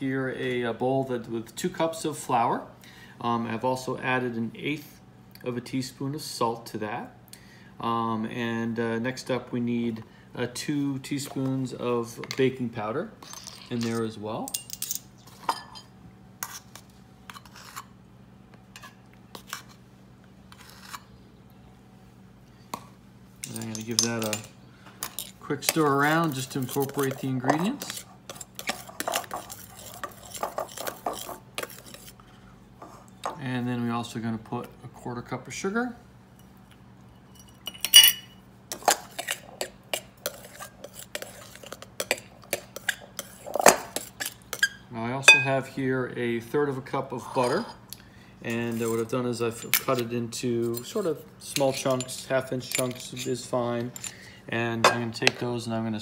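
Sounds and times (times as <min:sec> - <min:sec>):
steady low hum: 0:00.0 - 0:56.0
metal spoon scraping and tapping: 0:23.4 - 0:32.1, 0:37.4 - 0:44.7.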